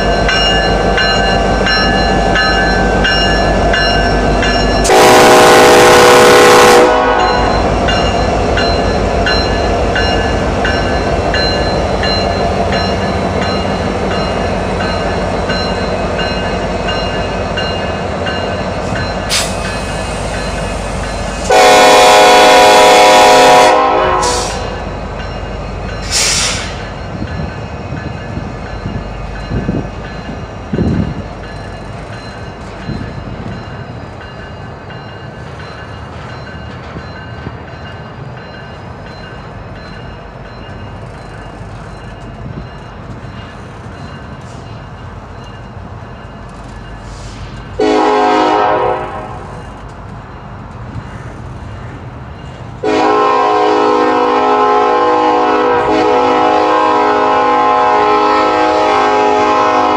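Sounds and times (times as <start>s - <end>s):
freight train rumbling past: 0.0s - 59.9s
locomotive air horn blast: 4.9s - 7.5s, 21.4s - 24.8s, 47.2s - 49.4s, 52.8s - 59.9s.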